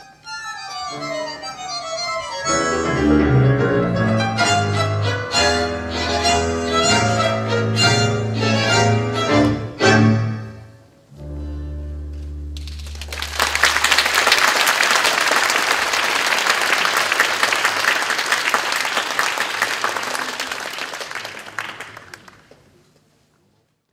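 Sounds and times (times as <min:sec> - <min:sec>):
audience applause: 0:12.6 - 0:22.7.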